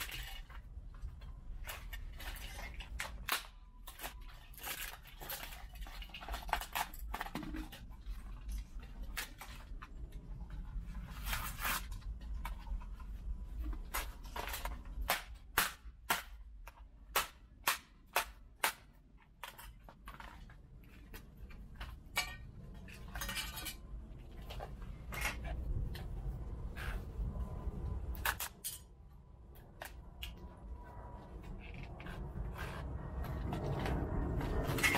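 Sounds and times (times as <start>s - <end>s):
plastic parts cracking and snapping: 0.0s - 10.2s.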